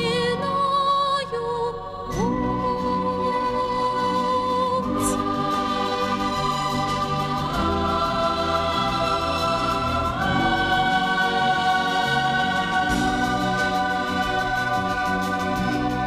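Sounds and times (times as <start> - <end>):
choir singing held chords: 4.8 - 16.0
orchestral accompaniment: 4.9 - 16.0.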